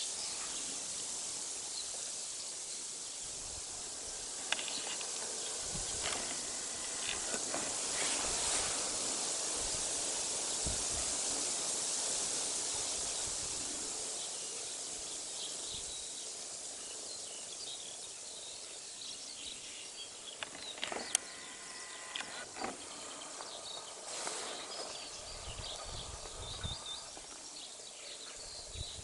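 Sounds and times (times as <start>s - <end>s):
steady hiss: 0.0s - 29.0s
faint small bird chirps: 14.2s - 29.0s.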